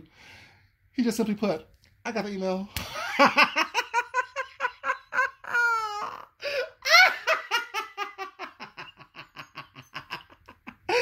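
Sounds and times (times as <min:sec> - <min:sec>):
man laughing hard: 0:02.9 - 0:11.0.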